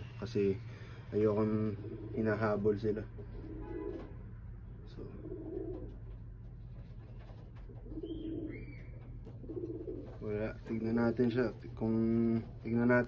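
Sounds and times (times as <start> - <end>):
pigeons cooing: 1.3 - 4.2, 5.0 - 6.3, 7.0 - 10.9.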